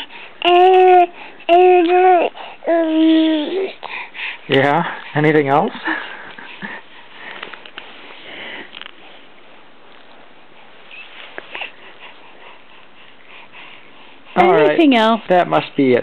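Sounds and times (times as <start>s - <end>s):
baby sniffing and breathing: 2.2s - 2.8s, 3.5s - 5.3s, 10.9s - 14.4s.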